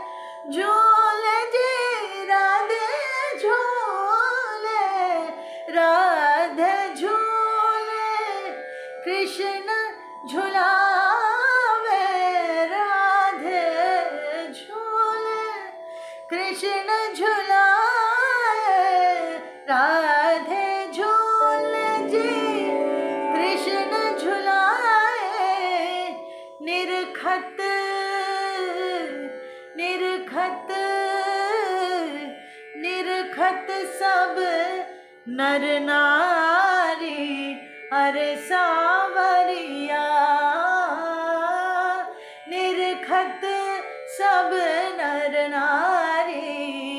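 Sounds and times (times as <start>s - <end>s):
woman singing: 0.0s - 46.9s
instrumental drone: 15.6s - 33.2s.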